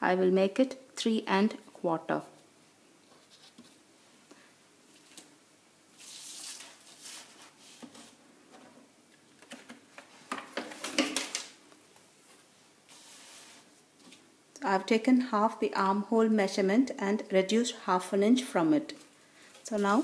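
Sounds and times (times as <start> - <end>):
paper rustling on table: 3.0 - 3.8, 6.0 - 8.2, 12.2 - 14.2.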